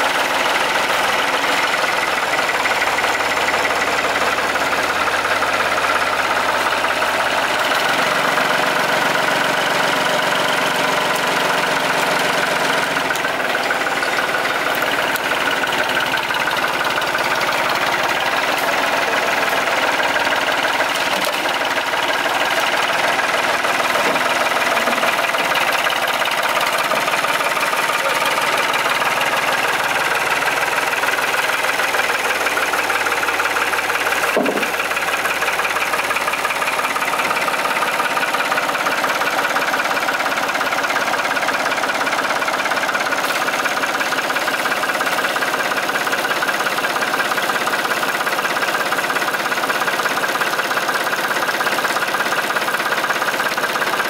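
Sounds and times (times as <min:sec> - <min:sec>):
tractor engine idling: 0:00.0 - 0:54.0
sharp knock: 0:34.4 - 0:34.7.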